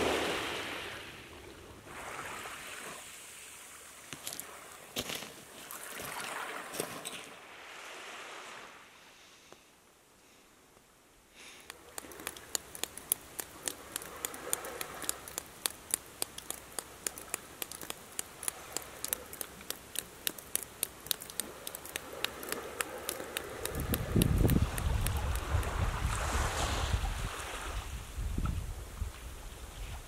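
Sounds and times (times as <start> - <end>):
water dripping off rock: 11.6 - 25.9.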